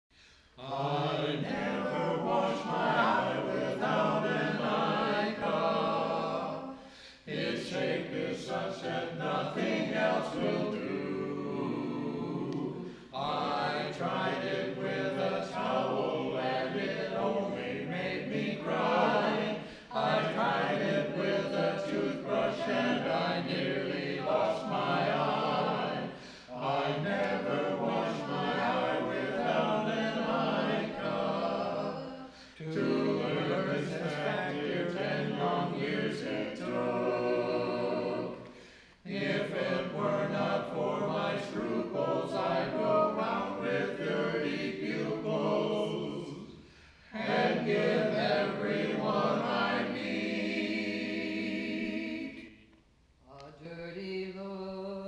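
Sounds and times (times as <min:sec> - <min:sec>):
mixed group singing a cappella: 0:00.2 - 0:55.0.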